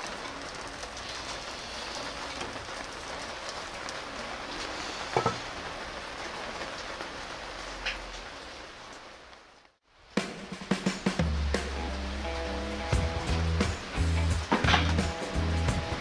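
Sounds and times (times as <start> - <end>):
charcoal fire crackling and sizzling: 0.0 - 16.0.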